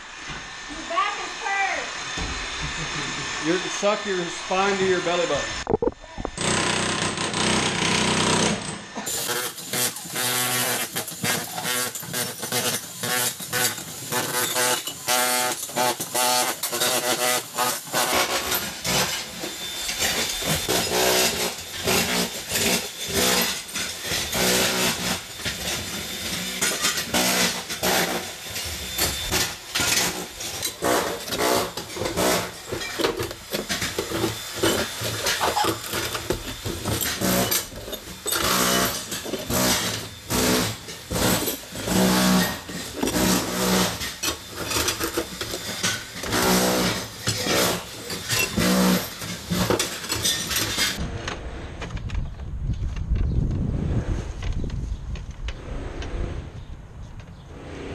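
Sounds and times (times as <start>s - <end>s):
demolition hammer rattling on tile: 5.8s - 51.0s.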